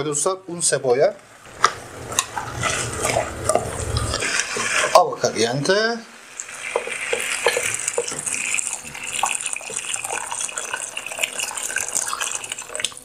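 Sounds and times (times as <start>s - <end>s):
water pouring from kettle: 6.2s - 13.0s.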